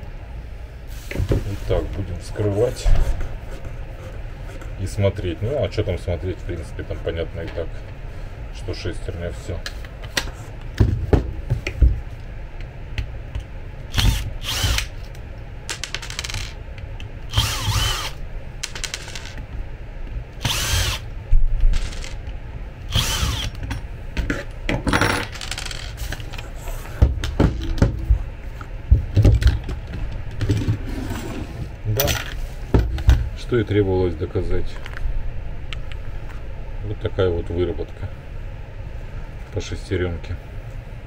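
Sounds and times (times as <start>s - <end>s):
cordless drill whirring: 13.9s - 14.9s, 17.3s - 18.2s, 20.4s - 21.0s, 22.9s - 23.6s
screws and metal parts clinking: 18.7s - 19.4s, 21.8s - 22.2s.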